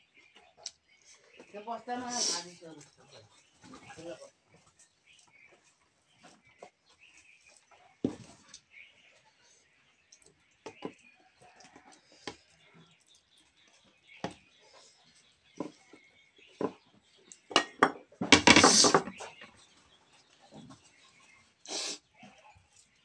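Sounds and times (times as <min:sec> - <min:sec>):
plates knocking and clinking: 0:17.5 - 0:19.3.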